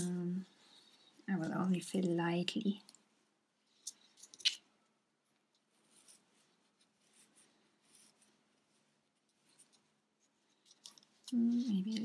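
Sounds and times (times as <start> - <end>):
stuffing rustling and scratching: 5.2 - 12.0.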